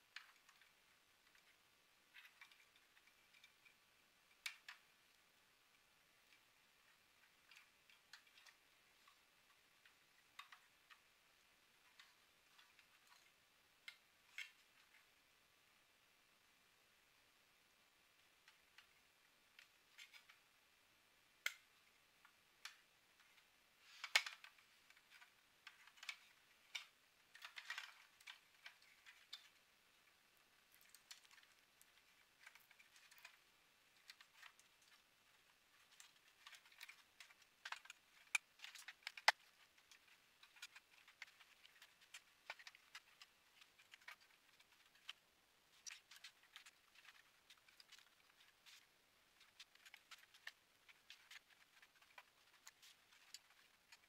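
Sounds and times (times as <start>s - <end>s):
hands handling plastic parts: 22.3s - 54.0s.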